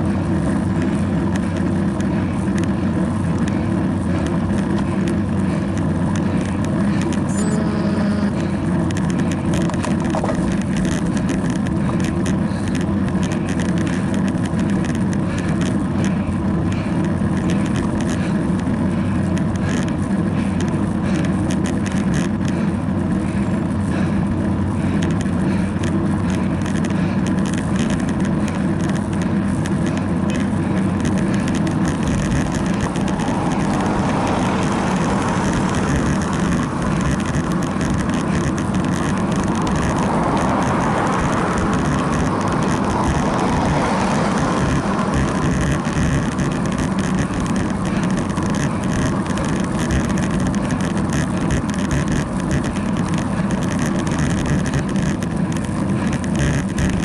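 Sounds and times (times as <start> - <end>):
tyre and road noise: 0.0 - 57.0
wind rushing over microphone: 0.0 - 57.0
camera mount rattles and ticks: 8.8 - 16.2, 24.9 - 57.0.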